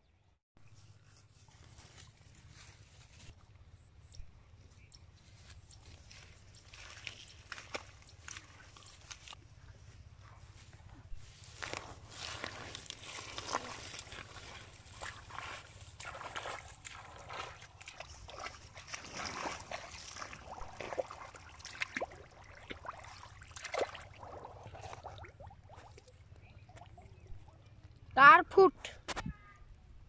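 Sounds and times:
bare feet splashing in mud: 5.4 - 9.4, 11.3 - 27.1.

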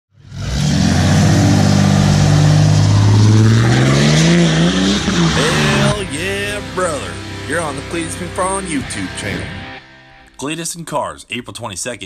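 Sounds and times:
diesel truck engine accelerating: 0.1 - 8.6.

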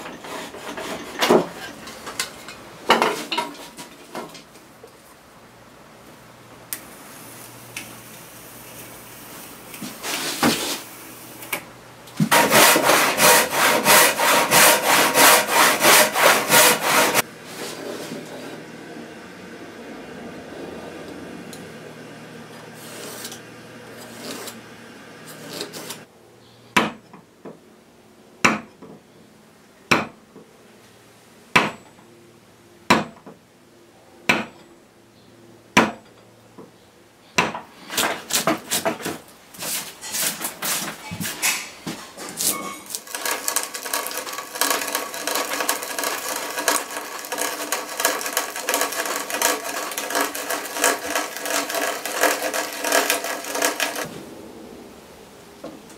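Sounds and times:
knife scraping along wood: 0.0 - 1.9, 12.2 - 18.1, 22.7 - 24.6, 25.3 - 26.1, 37.8 - 41.6, 42.4 - 54.1
auger bit boring into wood: 12.3 - 17.2, 42.9 - 54.1
mallet striking a chisel: 28.4 - 28.7, 31.6 - 31.8, 34.3 - 34.6.

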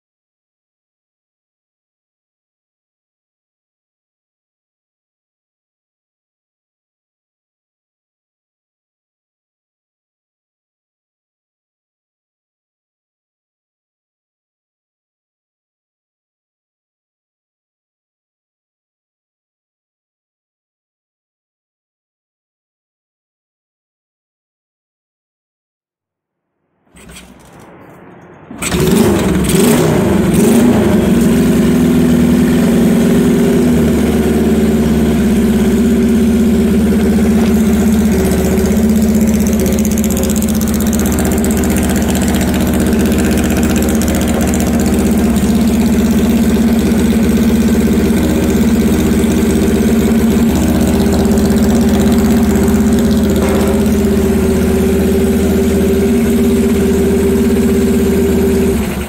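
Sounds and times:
motorcycle engine idling: 28.6 - 59.0.

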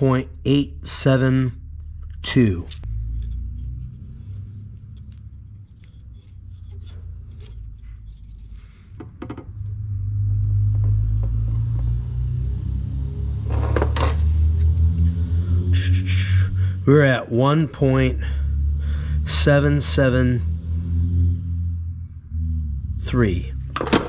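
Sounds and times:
low rumble: 0.0 - 24.0
metal tools clicking and scraping: 2.5 - 9.0.

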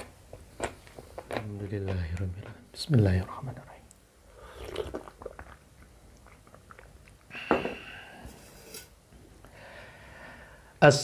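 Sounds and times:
gulping sips of a drink: 4.3 - 7.4.

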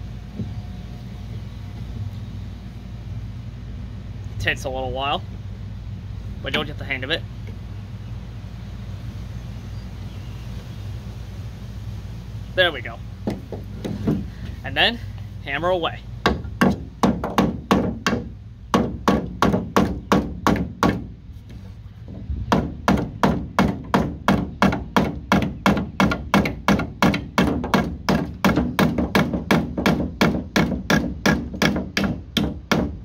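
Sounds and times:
hammer striking a nail in wood: 13.2 - 14.3, 16.2 - 21.1, 22.5 - 33.0.

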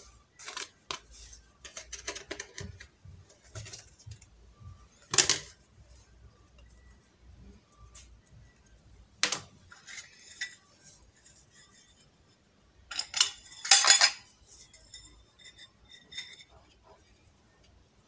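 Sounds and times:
metal tins clinking on stone: 12.9 - 16.5.

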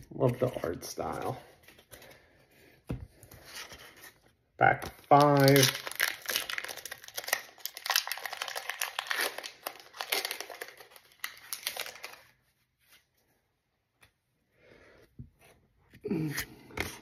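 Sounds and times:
foil wrapper tearing and crinkling: 5.0 - 12.3.

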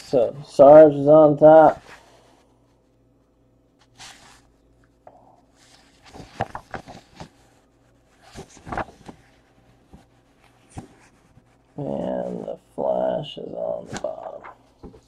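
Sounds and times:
paper rustling: 3.8 - 4.5, 5.6 - 12.5, 13.8 - 15.0.

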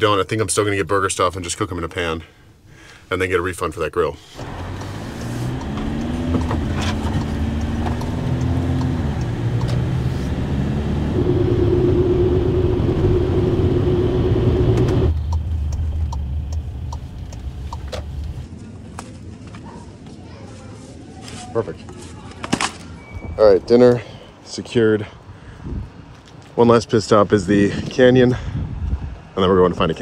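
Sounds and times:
van engine drone: 4.2 - 18.8
tyre and road rumble: 4.2 - 30.0.

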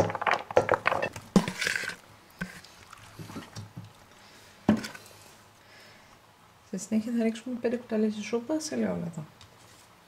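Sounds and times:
chopped vegetables clattering into pot: 0.0 - 2.0.

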